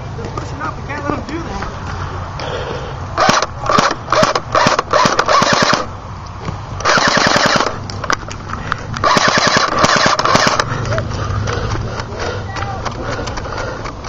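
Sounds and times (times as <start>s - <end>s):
airsoft guns firing bursts: 3.2s - 5.9s, 6.8s - 7.8s, 9.0s - 10.7s.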